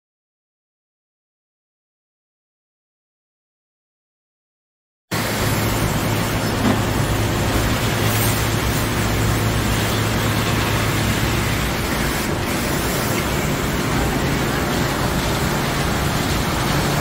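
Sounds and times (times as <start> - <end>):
car wash equipment hissing: 5.1 - 17.0.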